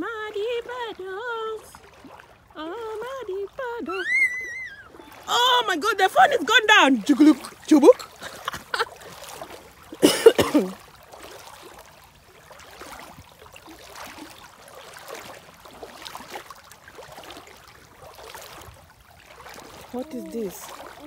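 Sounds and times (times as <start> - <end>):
feet wading through water: 0.0 - 21.0
person coughing: 10.0 - 10.8.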